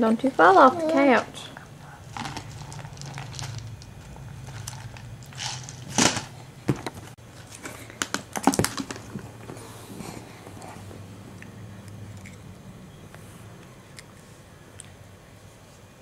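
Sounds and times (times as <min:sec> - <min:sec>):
steady low hum: 0:00.0 - 0:16.0
plastic canister clicks and rustles: 0:04.5 - 0:09.2.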